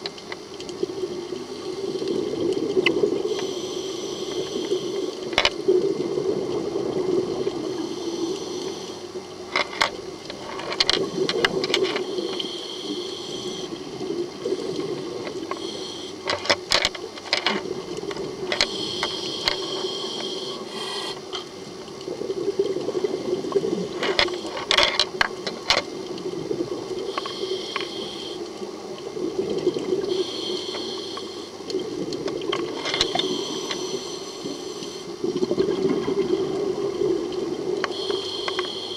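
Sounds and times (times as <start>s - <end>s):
gurgling rush of exhaled bubbles: 0.8s - 3.4s, 5.0s - 7.8s, 11.0s - 15.7s, 21.7s - 24.7s, 25.9s - 27.5s, 29.0s - 30.2s, 35.1s - 37.8s
regulator inhale hiss: 3.1s - 5.4s, 7.5s - 9.3s, 11.0s - 16.5s, 18.5s - 21.5s, 27.0s - 28.6s, 30.0s - 31.6s, 32.8s - 35.2s, 37.8s - 38.9s.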